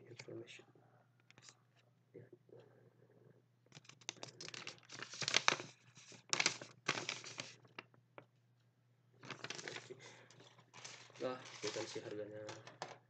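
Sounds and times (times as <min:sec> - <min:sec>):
paper rustling and crinkling: 0:03.7 - 0:08.0, 0:09.2 - 0:12.7.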